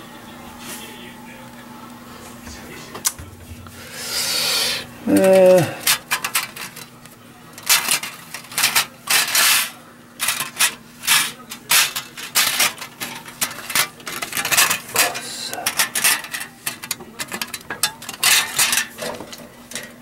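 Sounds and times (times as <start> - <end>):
metal gasket rattling and clanking: 5.2 - 6.9, 10.2 - 20.0.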